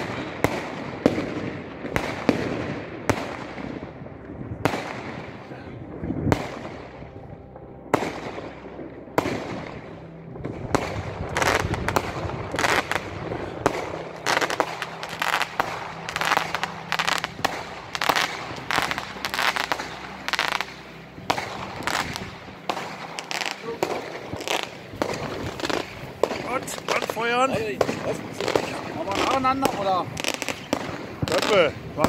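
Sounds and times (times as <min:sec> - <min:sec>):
fireworks and firecrackers banging: 0:00.0 - 0:32.0.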